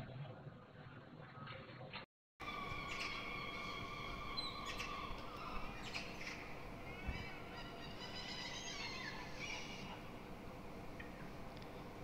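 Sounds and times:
faint background hum: 0:00.0 - 0:12.0
gulls calling: 0:02.4 - 0:11.6.

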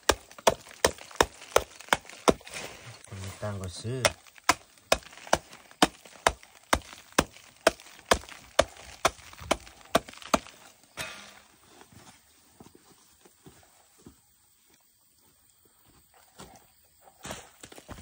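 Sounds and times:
knife chopping dry earth: 0:00.0 - 0:11.5.

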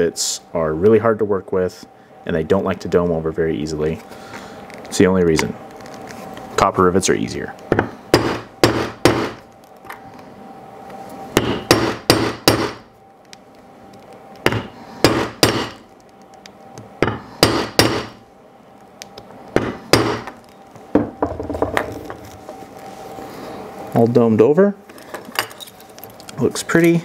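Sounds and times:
hammer striking rivet setter: 0:11.4 - 0:12.8, 0:14.5 - 0:15.8, 0:17.0 - 0:18.2.

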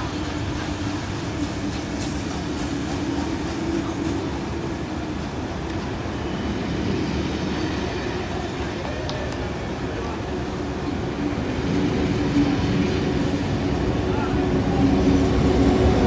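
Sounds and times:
sharp click of train wheels: 0:00.0 - 0:04.5, 0:05.2 - 0:06.0, 0:08.6 - 0:09.8
train wheels rumbling on rails: 0:00.0 - 0:16.0.

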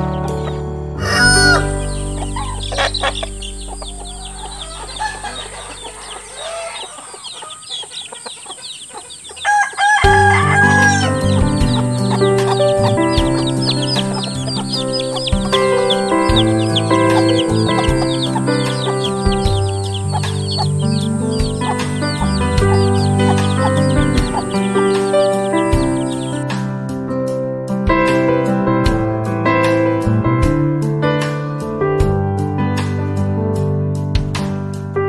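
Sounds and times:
background music: 0:00.0 - 0:07.6, 0:09.4 - 0:35.0
chickens clucking: 0:00.0 - 0:26.4
chicks peeping: 0:00.0 - 0:26.4
rooster crowing: 0:01.0 - 0:11.3.

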